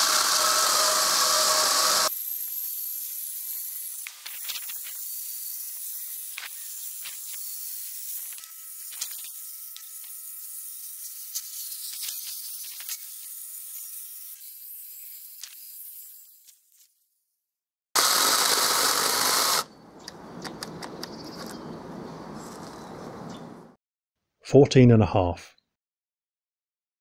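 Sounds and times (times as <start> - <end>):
chainsaw cutting log: 0.0 - 2.1, 18.0 - 19.7
sharp clicks: 19.0 - 21.6.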